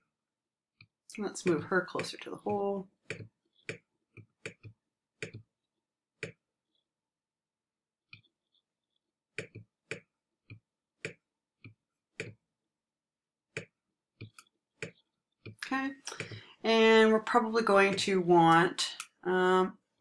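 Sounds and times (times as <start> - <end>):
computer mouse clicking: 13.6 - 16.4.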